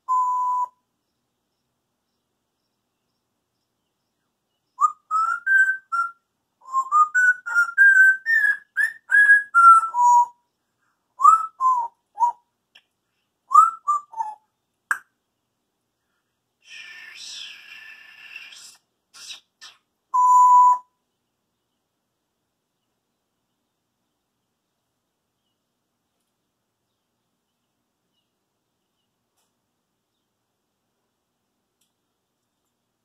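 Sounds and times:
parrot whistling: 16.9s - 20.9s.

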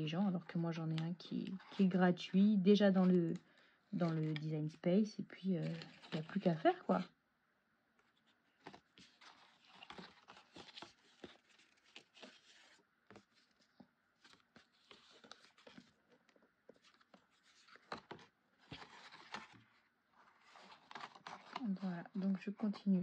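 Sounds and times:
cardstock rustling and tapping: 8.6s - 19.8s, 20.4s - 23.0s.

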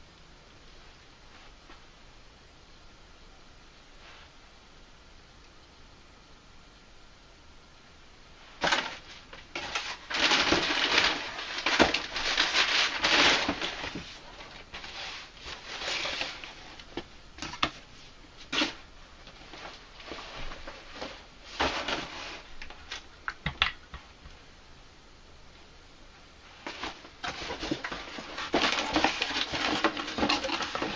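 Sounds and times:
rustling of packaging: 8.6s - 23.8s, 26.4s - 30.9s.

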